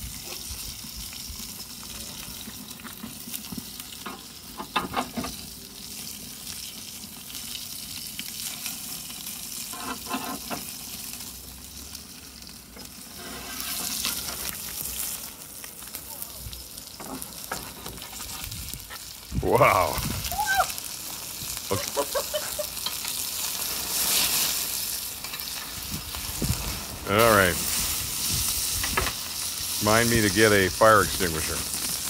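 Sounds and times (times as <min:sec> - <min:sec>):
fat sizzling on hot plate: 0:00.0 - 0:32.0
metal clinks and scrapes: 0:09.7 - 0:10.6.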